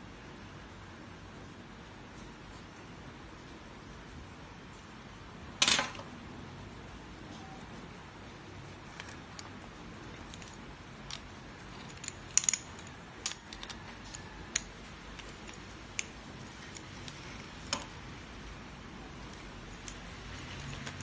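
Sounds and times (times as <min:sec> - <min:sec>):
sharp clicks and metal clinks: 0:10.2 - 0:17.9.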